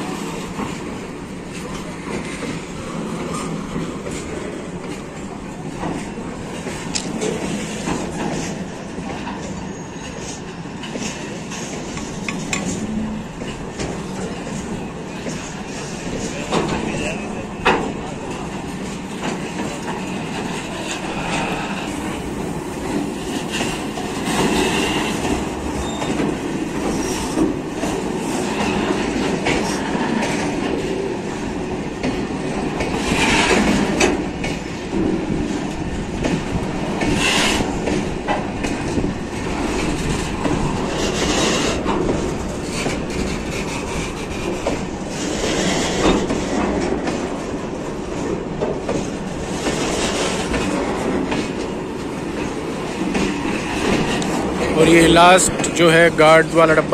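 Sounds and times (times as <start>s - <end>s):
train wheels rumbling on rail: 0.0s - 56.9s
wheels clacking over rail joint: 0.4s - 56.9s
high wheel squeals: 9.6s - 10.4s, 25.8s - 26.2s.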